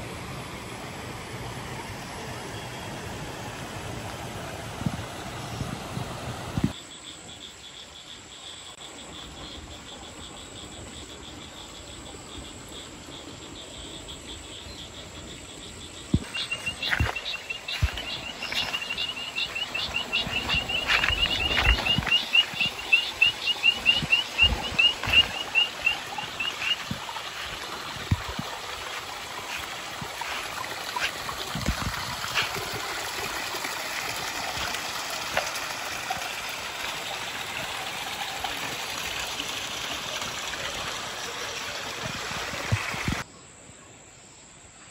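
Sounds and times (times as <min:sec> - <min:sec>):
footsteps on grassy path: 0:16.1 - 0:32.8
fast high chirps: 0:16.2 - 0:31.1.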